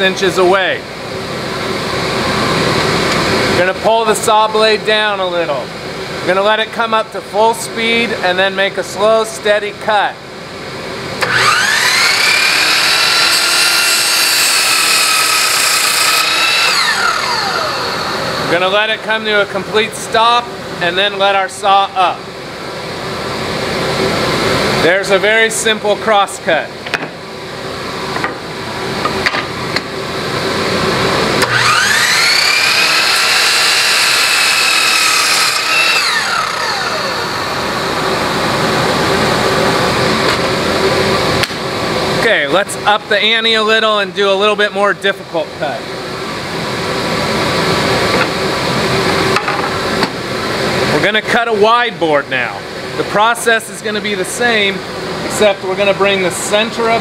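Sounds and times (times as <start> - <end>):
saw blade cutting wood: 11.2 - 18.4, 31.4 - 37.9
mitre saw motor whine: 11.2 - 18.6, 31.4 - 41.4
dust collector rushing: 31.3 - 41.2.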